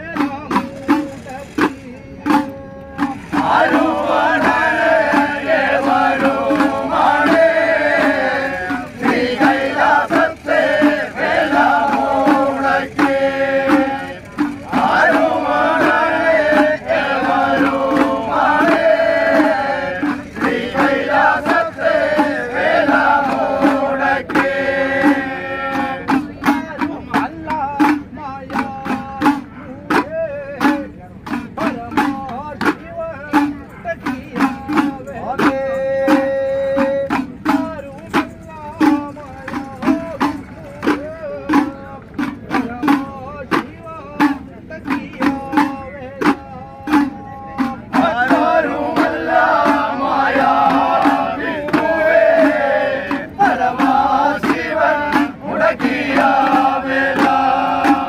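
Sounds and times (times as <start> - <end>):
hand drums: 0.0 - 58.0
group of men chanting: 3.0 - 27.2, 44.2 - 58.0.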